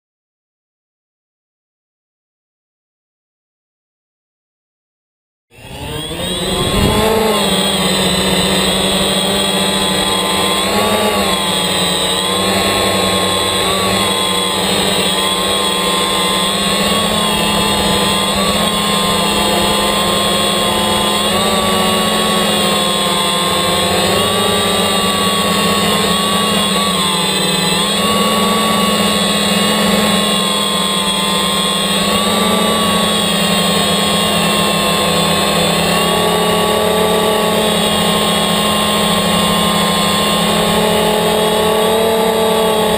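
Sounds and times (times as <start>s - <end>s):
drone propellers buzzing: 5.5s - 42.9s.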